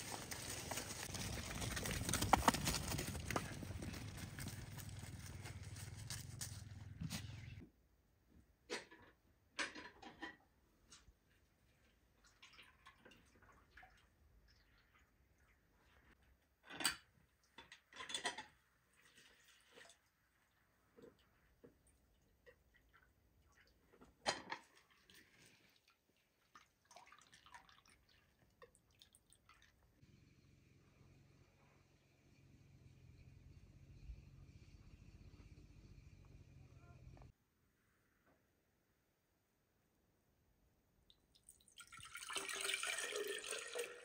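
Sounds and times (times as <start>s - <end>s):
juice dripping into metal bowl: 41.1s - 44.0s.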